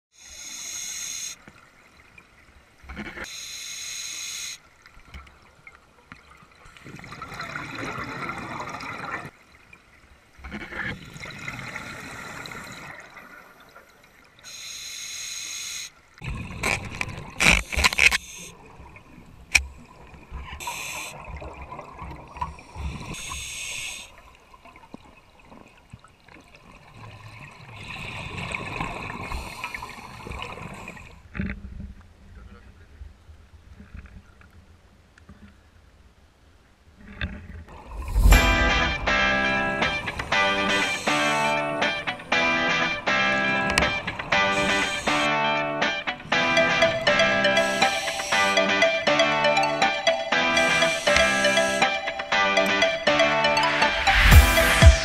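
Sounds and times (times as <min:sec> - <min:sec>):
regulator hissing inhalations: 0:00.2 - 0:01.4, 0:03.3 - 0:04.6, 0:14.5 - 0:15.9, 0:20.6 - 0:21.2, 0:23.1 - 0:24.2, 0:44.4 - 0:45.4, 0:47.5 - 0:48.7
gurgling exhaled bubbles: 0:16.2 - 0:17.5.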